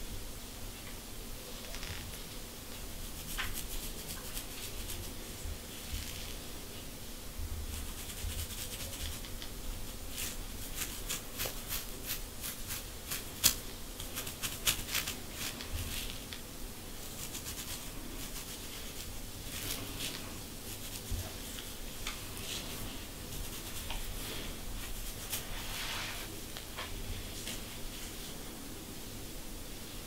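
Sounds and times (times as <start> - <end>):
comb scratching a scalp: 1.6 - 2.2, 2.8 - 6.4, 7.6 - 26.3.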